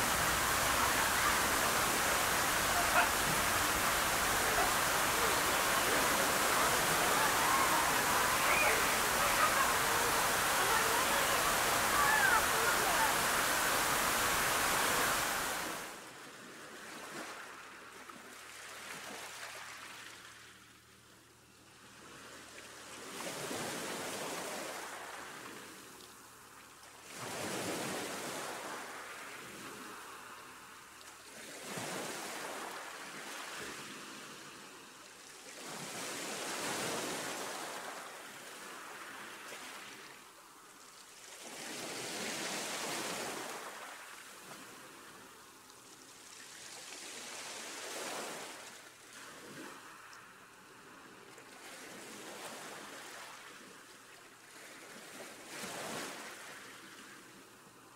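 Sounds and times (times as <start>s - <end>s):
ocean waves washing in: 0.0s - 20.7s, 27.0s - 40.7s, 41.3s - 53.8s.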